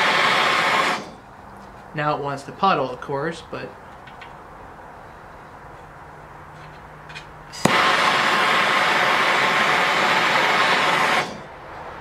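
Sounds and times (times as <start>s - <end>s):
hissing torch flame: 0.0s - 1.3s, 7.6s - 11.6s
torch igniter click: 7.6s - 11.4s.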